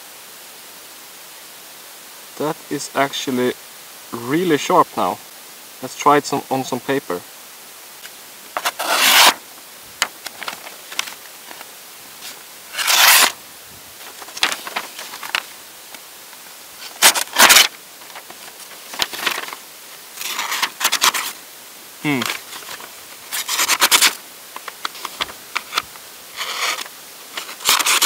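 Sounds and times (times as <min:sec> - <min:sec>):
knife slicing paper: 0:08.6 - 0:09.4, 0:12.2 - 0:13.4, 0:16.8 - 0:19.6, 0:20.2 - 0:21.4, 0:22.1 - 0:24.2, 0:26.4 - 0:28.0
paper rustling: 0:08.6 - 0:09.4, 0:10.0 - 0:13.4, 0:14.0 - 0:16.0, 0:16.8 - 0:21.4, 0:22.0 - 0:28.0.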